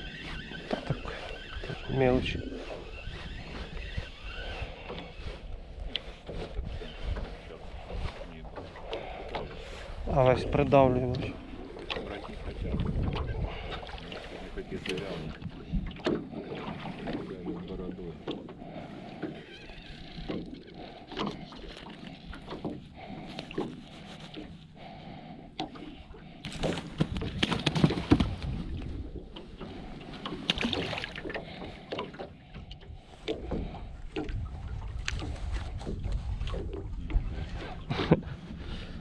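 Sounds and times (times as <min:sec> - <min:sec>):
wind rumble on microphone: 0:00.0 - 0:17.8, 0:26.8 - 0:31.8, 0:32.5 - 0:39.0.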